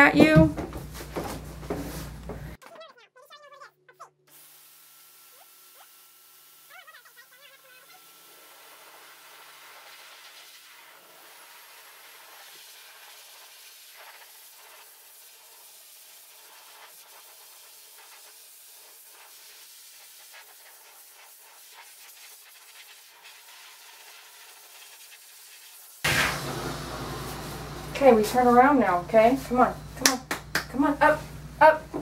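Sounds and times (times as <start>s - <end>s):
blow dryer air hiss: 26.0s - 29.8s.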